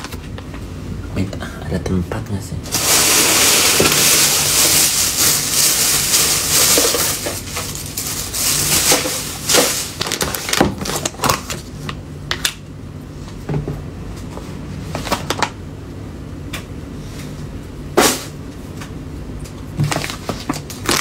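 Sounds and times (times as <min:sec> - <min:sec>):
loud rustling: 0:02.7 - 0:10.2.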